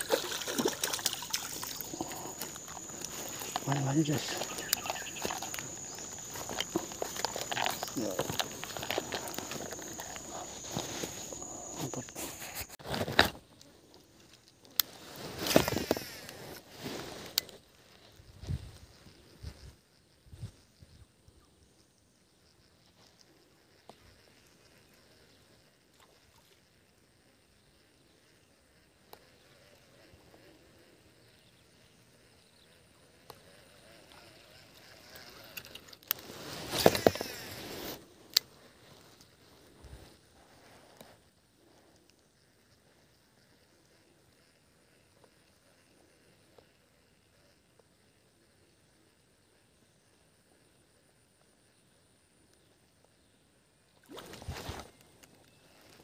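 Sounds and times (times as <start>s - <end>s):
water splashing: 0.0s - 3.7s
high insect drone: 0.0s - 56.0s.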